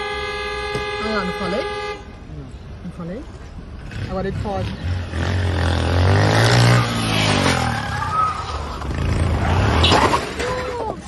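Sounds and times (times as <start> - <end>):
motorcycle engine revving: 3.8 - 8.0.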